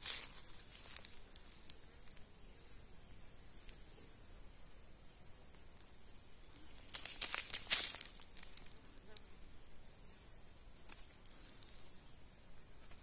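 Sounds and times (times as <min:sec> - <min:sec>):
dry twigs and leaves crackling: 0:00.0 - 0:02.3, 0:05.5 - 0:09.9, 0:10.8 - 0:12.2.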